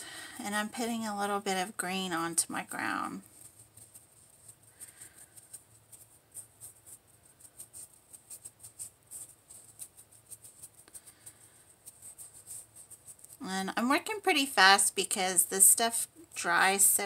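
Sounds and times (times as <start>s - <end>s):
paintbrush ticks and scratches: 0.4s - 17.0s.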